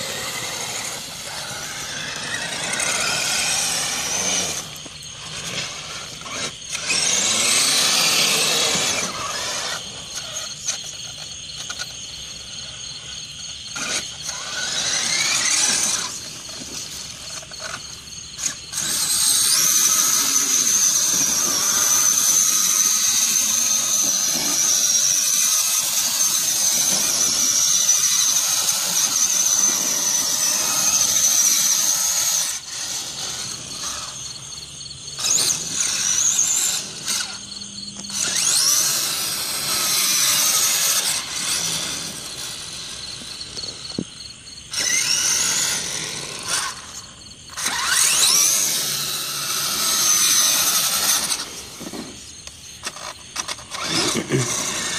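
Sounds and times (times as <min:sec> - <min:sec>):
toy truck motor whining: 0:00.0 - 0:54.9.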